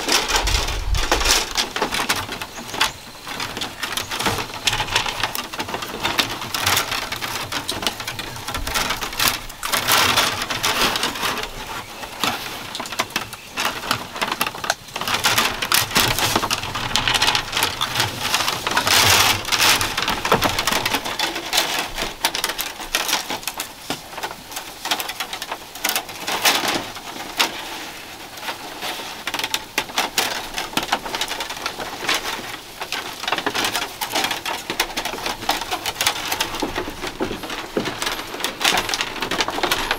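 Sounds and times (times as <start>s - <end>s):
bamboo strips rustling and clicking: 0.0s - 39.9s.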